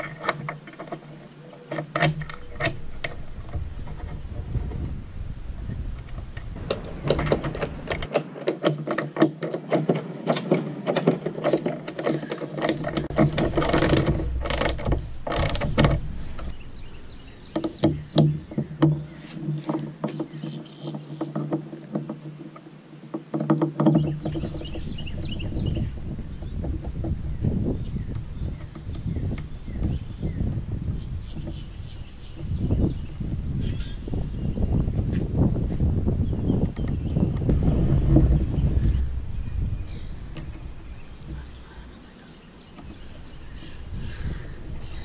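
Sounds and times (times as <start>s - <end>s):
metal clicking and knocking: 0.0s - 4.8s, 6.0s - 16.6s, 17.5s - 29.9s, 36.6s - 41.8s
steady low hum: 35.3s - 45.0s.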